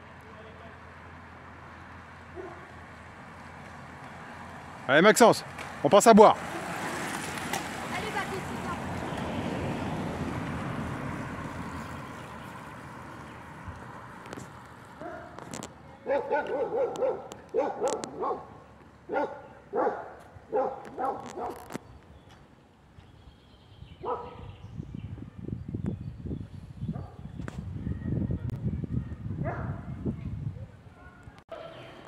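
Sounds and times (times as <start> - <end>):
passing car road noise: 0.0 - 23.0
dog barking: 2.4 - 2.7, 15.0 - 15.4, 16.0 - 21.7, 24.0 - 24.5, 29.4 - 29.9.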